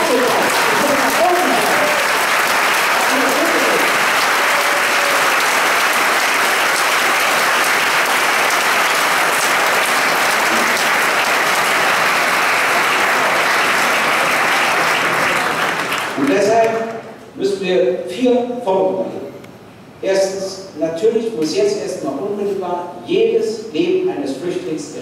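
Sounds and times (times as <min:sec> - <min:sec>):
large audience applauding: 0:00.0 - 0:16.8.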